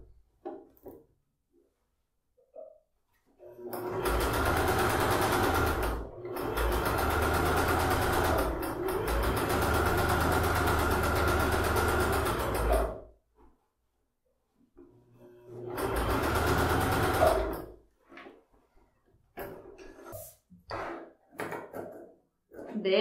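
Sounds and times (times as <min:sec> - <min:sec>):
sewing machine stitching: 0:03.4 - 0:13.1, 0:15.1 - 0:17.8.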